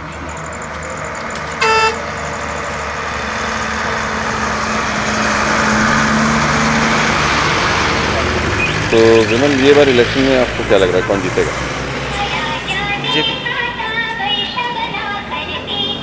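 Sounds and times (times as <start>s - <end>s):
truck engine and tyres approaching: 0.0s - 16.0s
vehicle horn toot: 1.6s - 2.1s.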